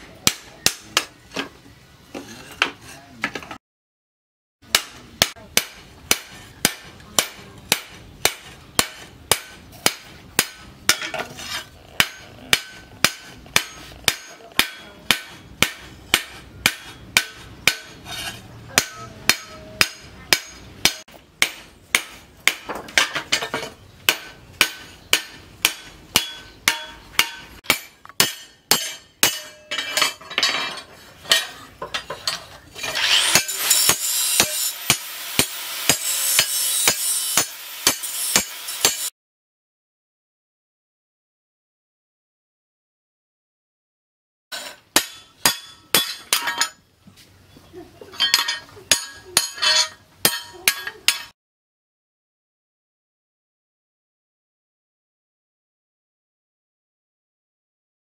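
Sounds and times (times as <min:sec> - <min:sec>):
hammer striking metal on anvil: 0:00.1 - 0:01.5, 0:04.7 - 0:39.1, 0:44.5 - 0:46.8, 0:48.2 - 0:51.4.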